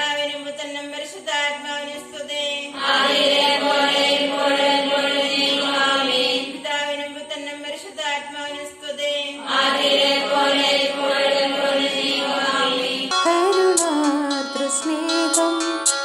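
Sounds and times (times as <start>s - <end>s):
women praying in unison: 0.0s - 13.1s.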